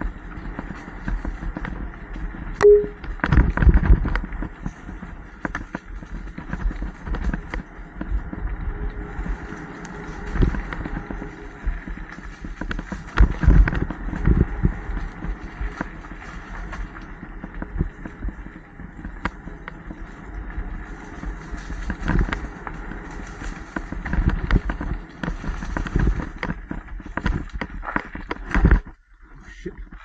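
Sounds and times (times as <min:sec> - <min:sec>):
bike knocking and rattling: 0:00.0 - 0:29.1
bike tyres rumbling on dirt: 0:00.0 - 0:30.0.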